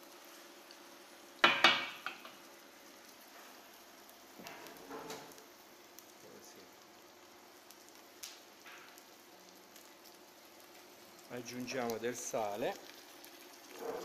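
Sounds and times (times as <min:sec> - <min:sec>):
food frying in oil: 0:00.0 - 0:14.0.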